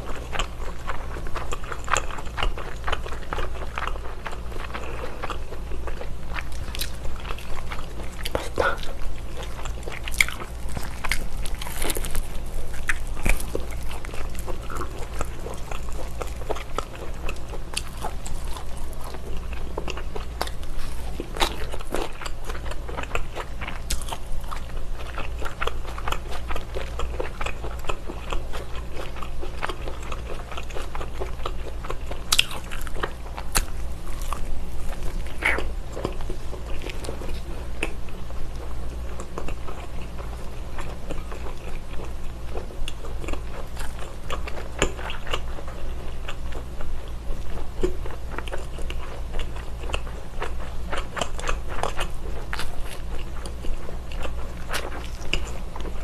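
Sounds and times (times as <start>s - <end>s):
biting and chewing: 0.0s - 56.0s.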